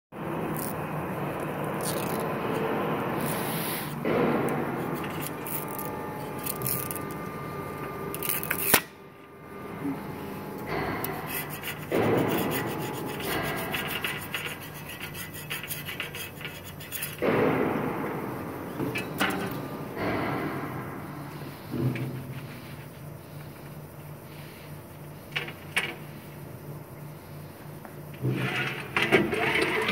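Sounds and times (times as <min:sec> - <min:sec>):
machine hum: 0:00.2 - 0:29.9
metal scraper scraping steel: 0:03.2 - 0:07.4, 0:10.6 - 0:17.8, 0:18.7 - 0:19.7, 0:28.2 - 0:29.9.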